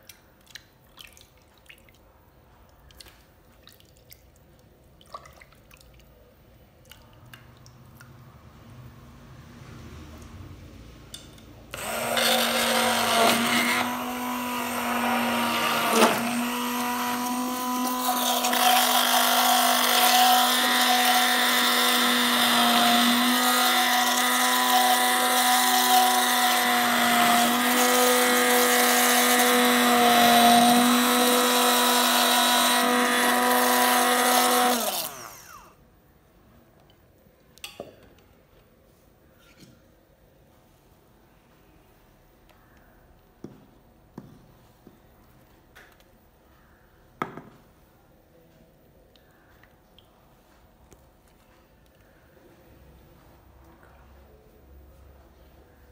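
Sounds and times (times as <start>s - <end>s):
hand blender running: 11.8s - 35.7s.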